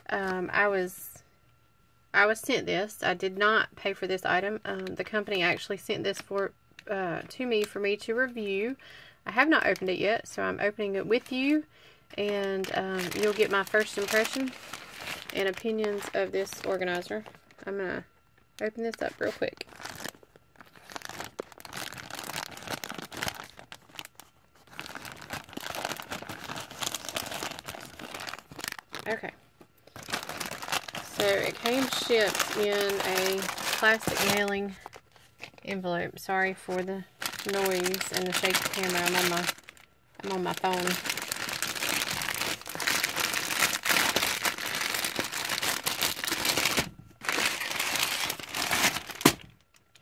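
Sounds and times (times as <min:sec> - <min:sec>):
plastic envelope crinkling: 0:10.9 - 0:17.8, 0:18.5 - 0:35.8, 0:36.4 - 0:50.0.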